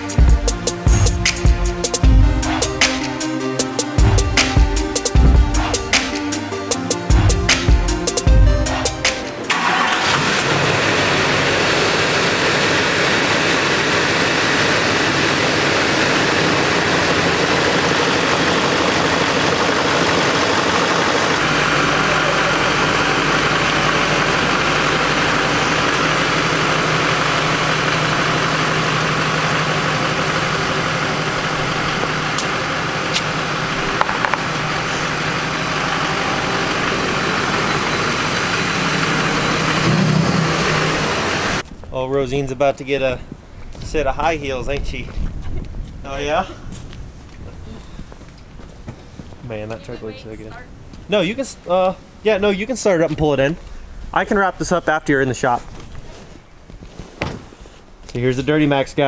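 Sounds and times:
diesel truck engine idling: 0.0 - 41.6.

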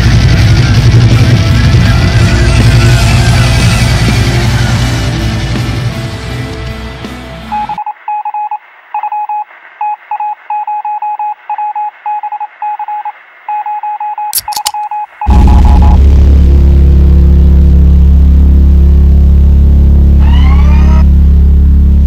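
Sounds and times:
loud bass-heavy music: 0.0 - 7.8, 15.3 - 22.0
music: 0.0 - 7.8, 20.1 - 22.0
morse code beeps over radio: 7.5 - 16.0
radio crackle: 14.4 - 21.7.

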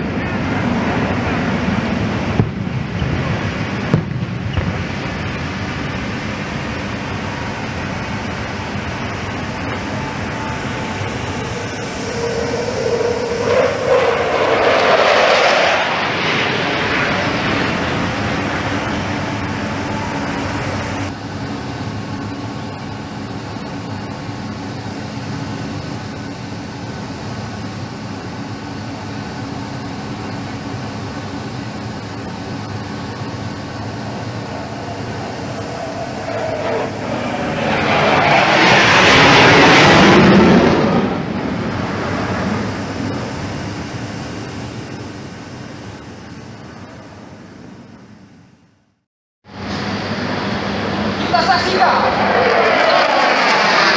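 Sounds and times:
loud rushing noise: 0.0 - 22.7, 31.9 - 46.2, 49.5 - 53.9
aircraft engines droning overhead: 0.0 - 53.9.

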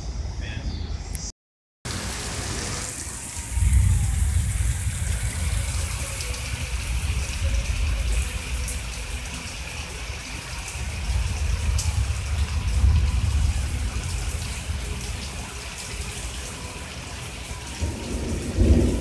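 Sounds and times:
rain falling: 1.9 - 19.0
wind buffeting microphone: 3.4 - 9.4, 10.8 - 15.7, 17.8 - 19.0.

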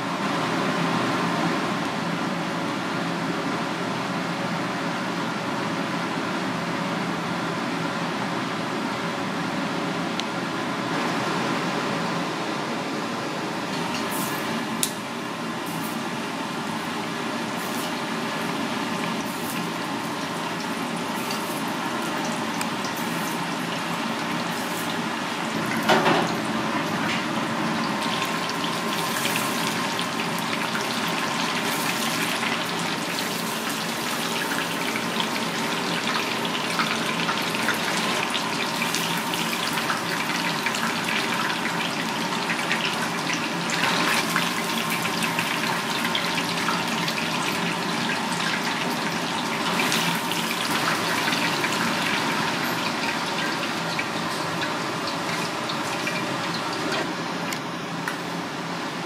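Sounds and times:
fish deep-frying in hot oil: 13.7 - 57.4.

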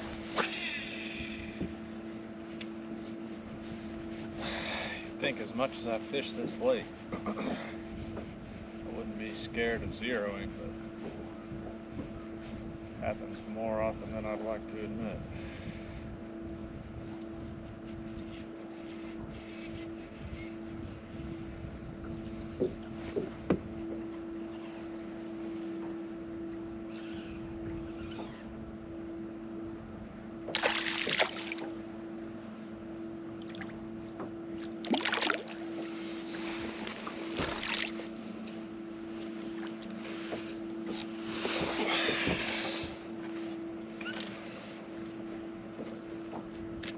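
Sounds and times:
electric trolling motor humming: 18.1 - 46.8
fish splashing at surface: 30.6 - 31.6.

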